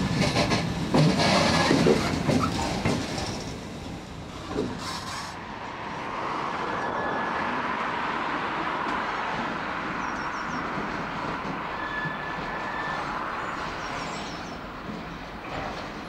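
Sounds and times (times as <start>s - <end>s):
diesel locomotive passing: 0.0s - 16.0s
distant locomotive hauling wagons: 0.0s - 16.0s
faint thin squeal: 11.7s - 13.2s.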